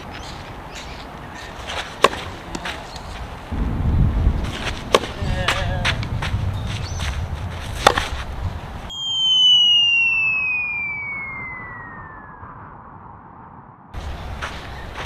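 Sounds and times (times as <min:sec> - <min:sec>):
outdoor court ambience: 0:00.0 - 0:11.5
falling whistle sound effect: 0:08.9 - 0:13.8.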